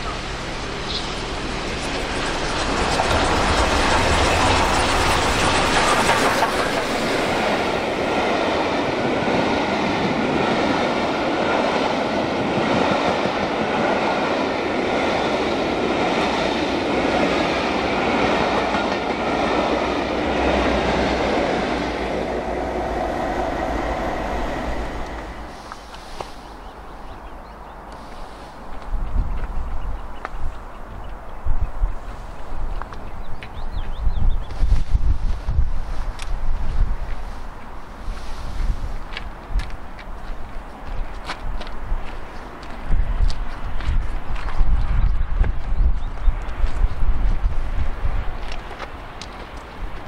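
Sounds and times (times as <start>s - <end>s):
coaches clattering along rails: 0.0s - 26.4s
steam locomotive passing: 0.0s - 50.0s.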